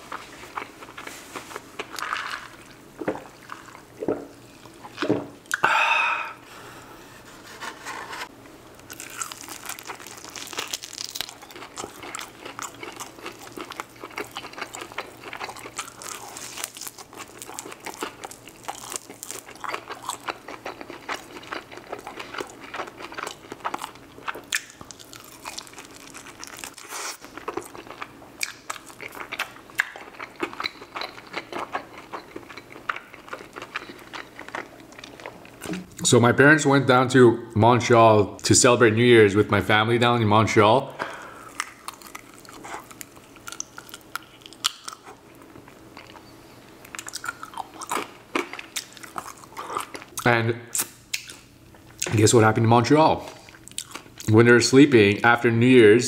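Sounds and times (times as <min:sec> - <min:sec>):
loud mouth noise: 0:05.5 - 0:06.4
chewing chicken wing: 0:08.8 - 0:35.3, 0:46.9 - 0:52.1, 0:53.3 - 0:54.4.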